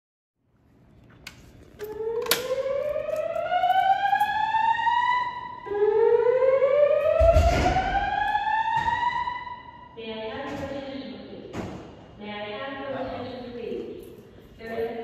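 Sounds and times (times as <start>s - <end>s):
fire alarm whoop tone: 1.8s - 10.0s.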